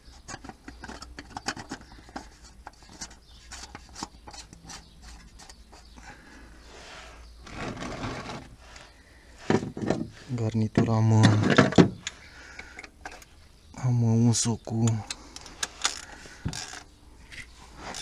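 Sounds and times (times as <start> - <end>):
oil filter clicking and rubbing: 0.0 - 6.0
rubbing scrape: 0.1 - 6.0, 6.6 - 10.4, 17.4 - 18.0.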